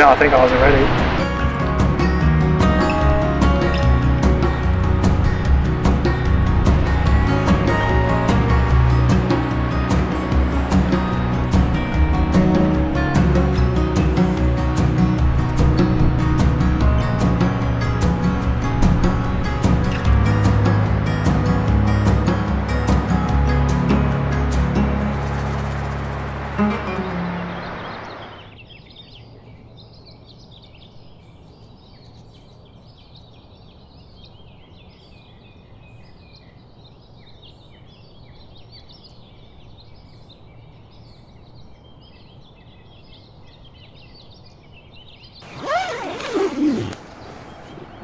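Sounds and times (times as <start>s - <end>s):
music: 0.0s - 28.4s
small birds chirping: 27.4s - 48.0s
tent door zipper: 45.4s - 48.0s.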